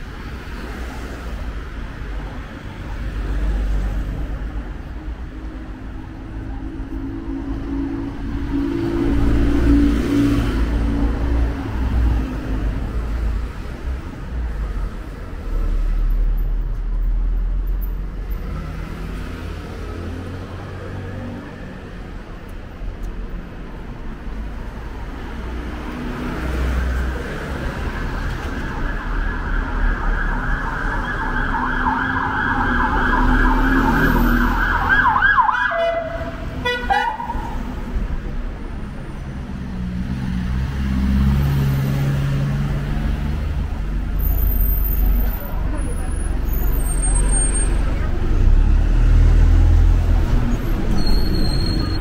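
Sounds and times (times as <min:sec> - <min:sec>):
traffic rumble: 0:00.0 - 0:52.0
siren warbling: 0:28.7 - 0:36.1.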